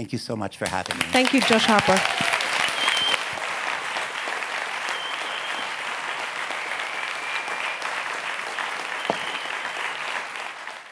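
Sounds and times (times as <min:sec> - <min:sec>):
audience applauding: 0:00.6 - 0:10.9.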